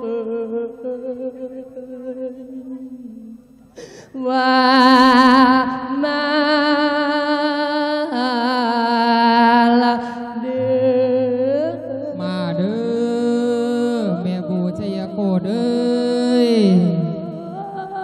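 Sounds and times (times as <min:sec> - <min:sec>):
amplified man chanting: 0:08.9 - 0:18.0.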